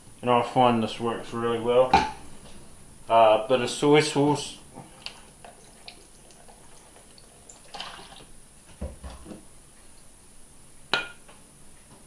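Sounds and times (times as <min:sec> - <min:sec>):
liquid trickling into bowl: 0:05.0 - 0:08.3.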